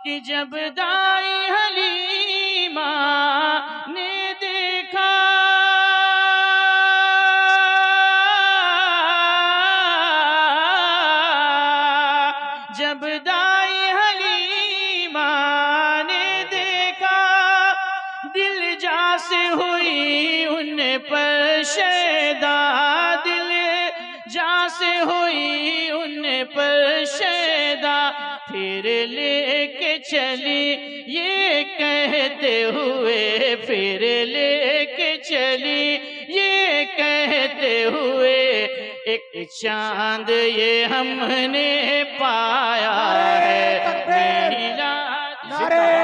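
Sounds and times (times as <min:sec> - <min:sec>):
man singing through microphone: 0:00.0 - 0:46.0.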